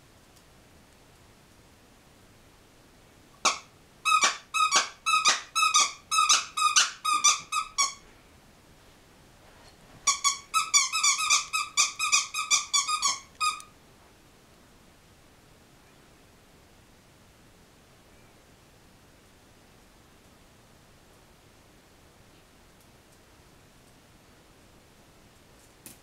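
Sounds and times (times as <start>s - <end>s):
squeaky dog toy squeaking: 3.4s - 8.0s, 10.1s - 13.7s.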